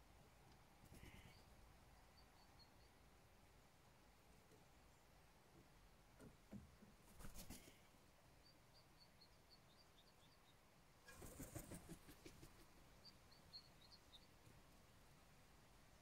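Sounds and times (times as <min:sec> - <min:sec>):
songbird chirping: 0:00.0 - 0:16.0
wings flapping: 0:07.1 - 0:07.7, 0:11.1 - 0:12.6.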